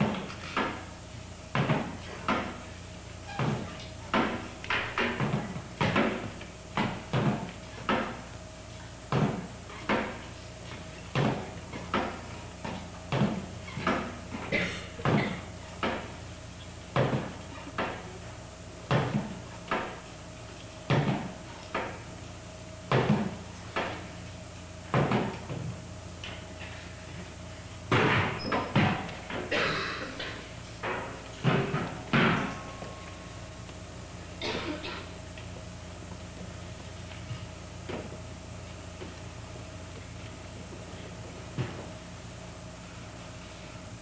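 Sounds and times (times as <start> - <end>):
folding chairs knocking on floor: 1.5 - 2.6, 3.3 - 8.2, 11.1 - 16.1, 17.0 - 18.0, 20.9 - 22.0, 22.9 - 24.0, 24.9 - 25.7, 27.9 - 29.6.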